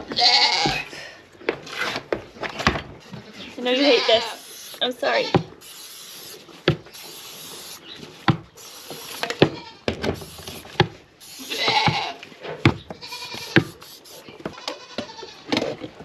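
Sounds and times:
goat bleating: 0:00.0 - 0:00.9, 0:03.6 - 0:05.6, 0:09.4 - 0:09.9, 0:11.4 - 0:12.2, 0:13.0 - 0:13.8, 0:14.5 - 0:15.5
aerosol spray can hissing: 0:04.3 - 0:04.9, 0:05.5 - 0:07.8, 0:08.6 - 0:09.4, 0:10.2 - 0:11.9, 0:13.1 - 0:14.3
hooves knocking on wood: 0:09.2 - 0:11.0, 0:11.6 - 0:16.0.

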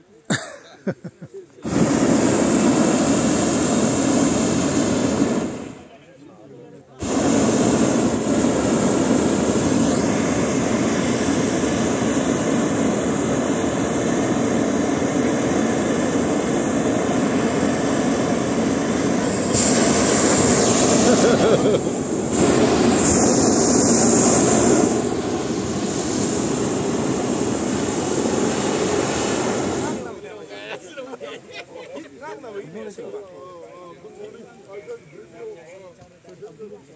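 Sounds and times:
propane burner blast: 0:01.6 - 0:06.0, 0:07.0 - 0:30.8.

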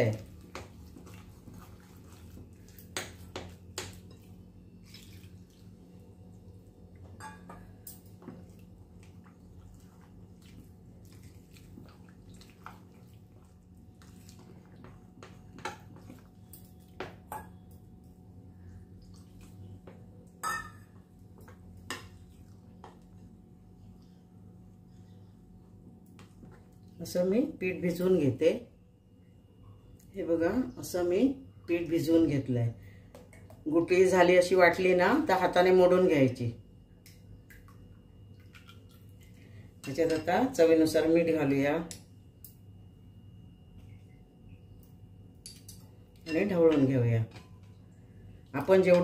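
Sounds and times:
batter stirring: 0:00.0 - 0:06.0, 0:08.2 - 0:17.2
faint low hum: 0:00.0 - 0:49.0.

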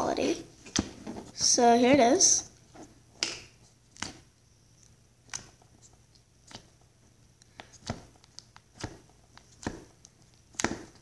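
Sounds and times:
sticky slime clicks and pops: 0:10.5 - 0:11.0.

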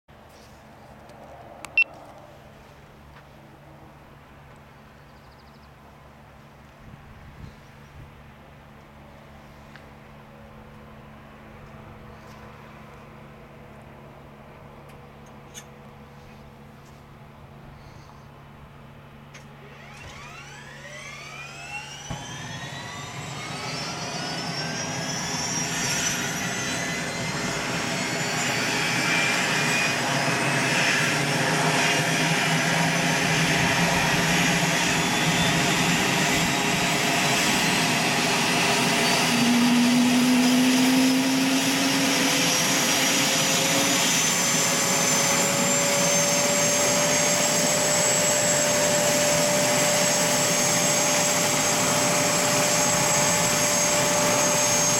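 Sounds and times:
helicopter turbine whine spooling up: 0:17.5 - 0:54.9
helicopter rotor tone: 0:19.6 - 0:54.9.

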